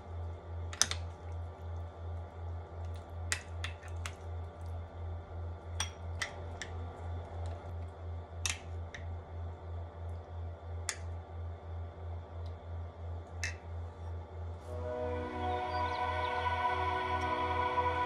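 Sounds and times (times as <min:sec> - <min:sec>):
low pulsing hum: 0:04.2 - 0:18.0.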